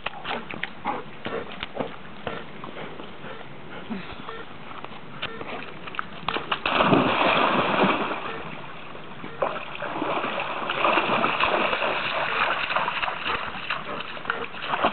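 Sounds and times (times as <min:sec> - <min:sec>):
dog splashing through water: 0:05.6 - 0:08.6, 0:09.4 - 0:14.9.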